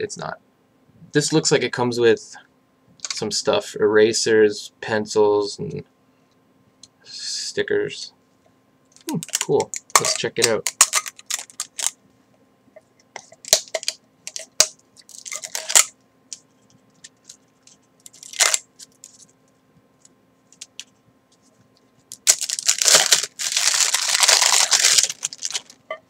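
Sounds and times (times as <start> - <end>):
packaging crinkling and clicking: 9.0 - 12.0, 13.4 - 20.9, 22.1 - 25.9
wrapping tearing: 9.1 - 12.0, 14.4 - 15.9, 17.0 - 19.3, 22.1 - 25.9
packaging rustle: 9.2 - 11.9, 13.4 - 15.9, 16.9 - 19.4, 22.1 - 25.9.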